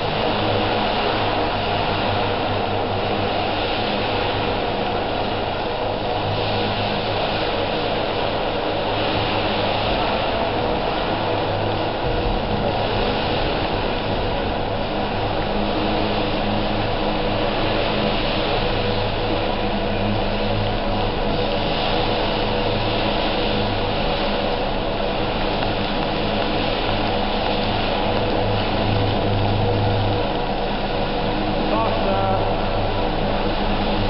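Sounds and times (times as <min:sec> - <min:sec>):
model helicopter rotor buzz: 0:00.0 - 0:34.0.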